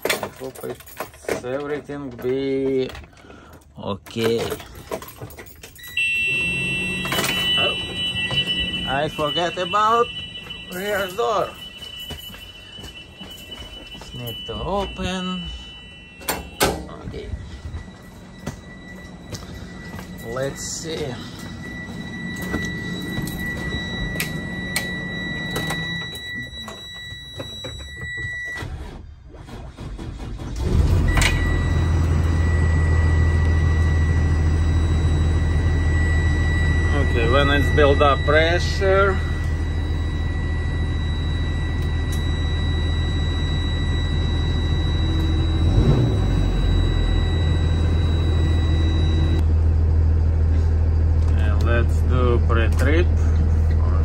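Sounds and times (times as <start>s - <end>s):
warning buzzer high tone: 5.8s - 28.6s, 31.1s - 49.4s.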